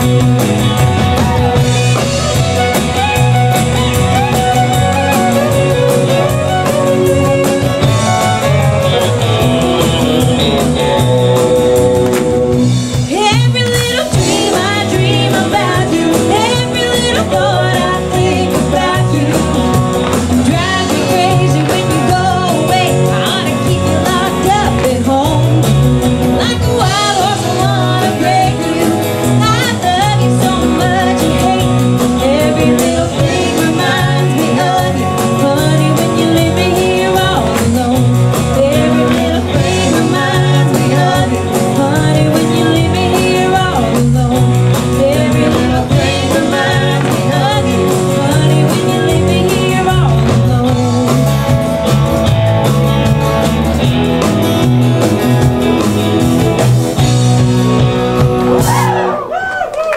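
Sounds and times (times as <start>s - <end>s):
drum kit beat: 0.0s - 59.2s
woman singing: 12.9s - 51.6s.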